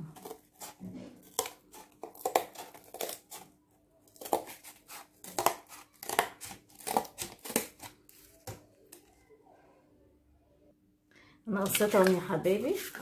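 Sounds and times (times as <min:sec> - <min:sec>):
scissors cutting cardboard: 0:00.0 - 0:03.5, 0:04.1 - 0:08.6.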